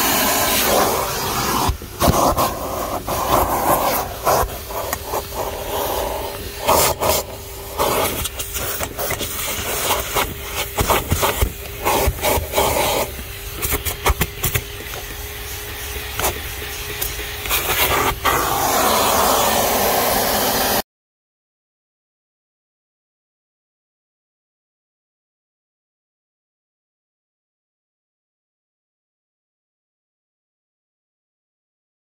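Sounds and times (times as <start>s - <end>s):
vacuum cleaner running: 0.0s - 20.8s
vacuum nozzle scraping and knocking: 0.0s - 20.8s.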